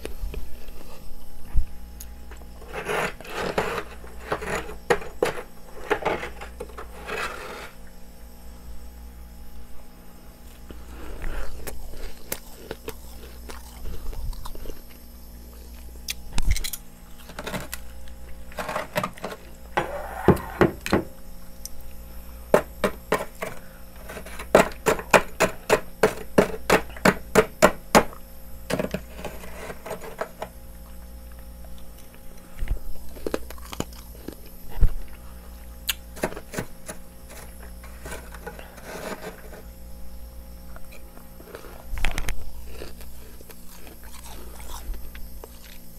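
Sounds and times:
frost being scraped: 2.6s - 7.8s, 23.1s - 27.0s, 28.7s - 30.5s, 36.1s - 39.7s
frost crunching in mouth: 10.5s - 18.6s, 30.8s - 36.2s, 40.8s - 45.9s.

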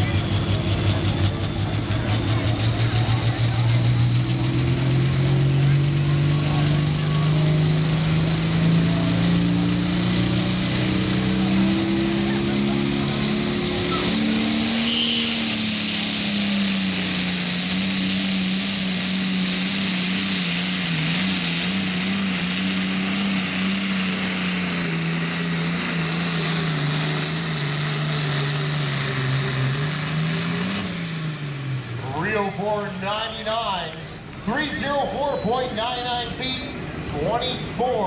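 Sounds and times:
diesel tractor engine at full throttle: 0.0s - 38.0s
high turbo whistle: 13.0s - 16.4s.

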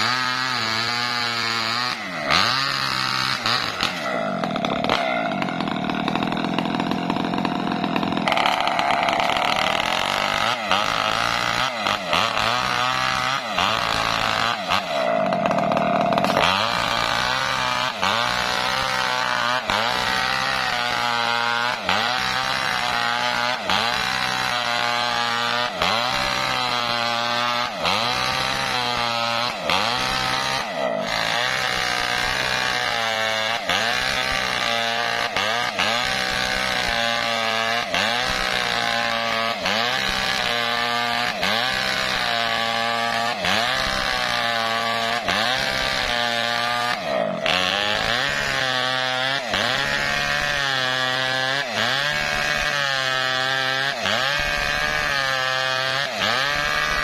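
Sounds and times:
chainsaw cutting log: 0.0s - 57.0s.

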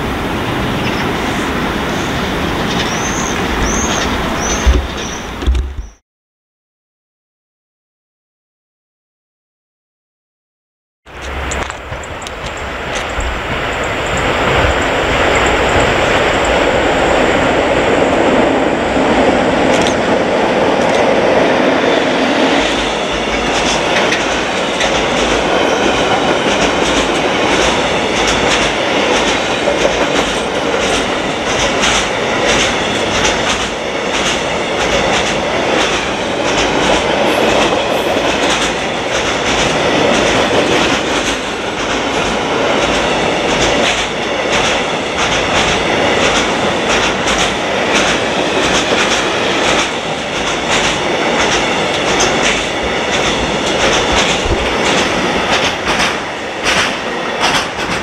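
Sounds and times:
locomotive passing: 0.0s - 5.9s, 11.1s - 58.0s
train wheels clacking on rail joints: 2.2s - 6.0s, 11.1s - 58.0s.

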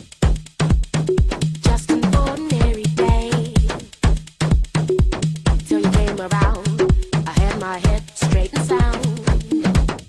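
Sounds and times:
dance music: 0.0s - 10.0s
kick drum beat: 0.0s - 10.0s.

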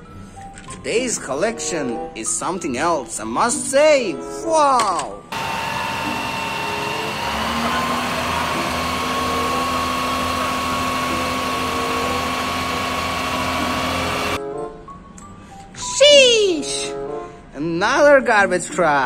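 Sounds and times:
diesel truck engine running: 5.3s - 14.4s
water cannon jet hissing: 5.4s - 14.4s.

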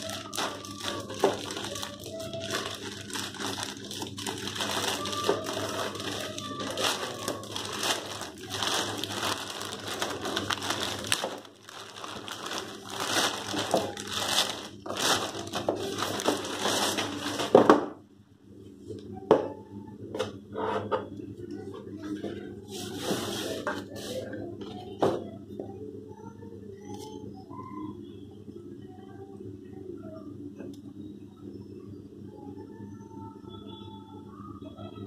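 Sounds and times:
plastic bag crinkling and tearing: 0.0s - 17.6s.

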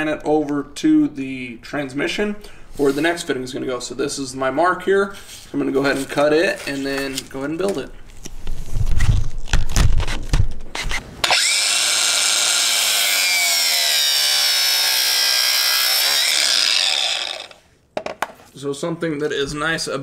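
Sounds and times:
angle grinder cutting whine: 11.2s - 17.6s.

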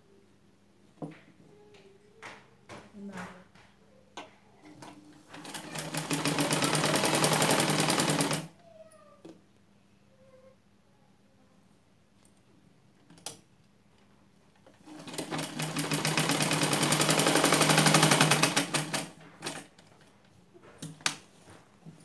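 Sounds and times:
sewing machine stitching: 4.8s - 8.5s, 14.8s - 19.7s.

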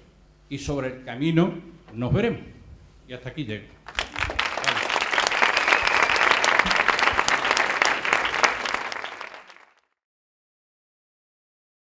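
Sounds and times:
audience applauding: 3.9s - 9.9s.

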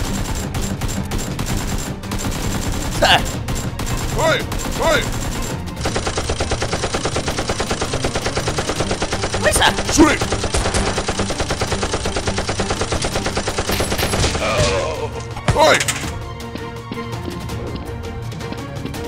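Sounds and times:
rapid automatic gunfire: 0.0s - 14.5s.

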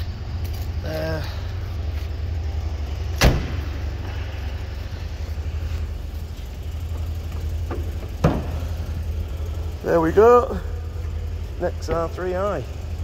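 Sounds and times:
low steady rumble: 0.0s - 13.0s
car door shutting: 3.1s - 3.9s, 7.6s - 8.7s
car bonnet opening clunk: 3.2s - 3.7s, 7.7s - 8.7s.

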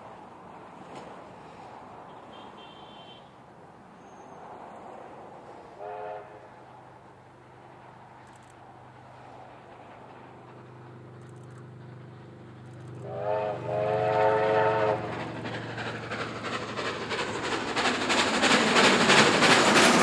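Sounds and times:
steam locomotive whistle: 2.1s - 3.3s, 5.8s - 6.5s, 12.9s - 15.2s
steam locomotive exhaust beats: 5.7s - 20.0s
train wheel clatter: 7.6s - 20.0s.

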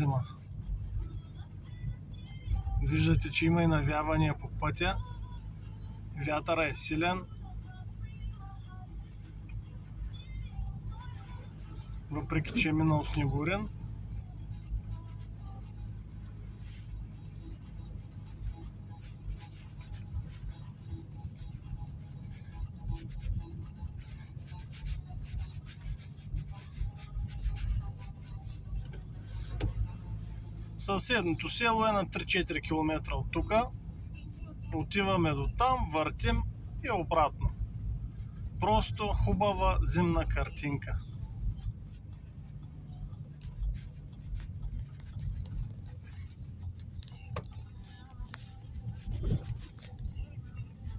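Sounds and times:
engine and tyre rumble: 0.0s - 50.9s
scratchy rubbing and ticking: 0.0s - 50.9s
windscreen wiper sweeping: 20.2s - 30.8s, 42.4s - 50.3s.

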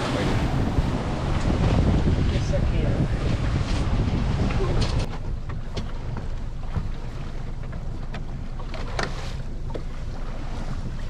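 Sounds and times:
steady low rumble: 0.0s - 11.0s
light knocks and slaps on boat: 3.2s - 11.0s.

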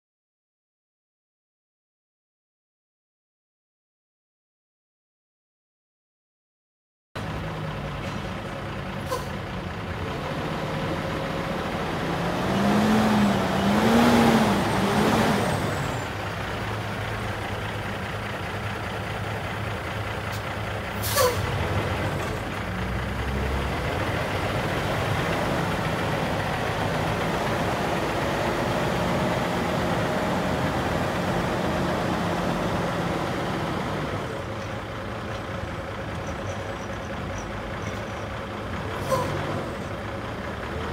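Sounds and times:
truck diesel engine revving: 7.2s - 40.9s
air brake hiss: 9.0s - 9.4s, 21.0s - 21.5s, 39.0s - 39.5s.

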